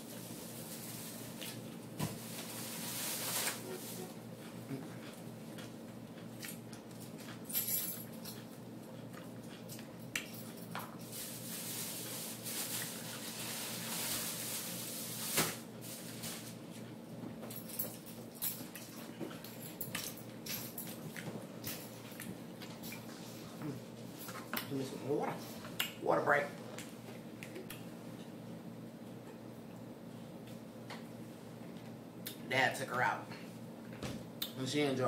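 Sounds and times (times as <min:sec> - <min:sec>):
chewing crunchy salad: 0:00.1 - 0:07.5, 0:08.1 - 0:15.0.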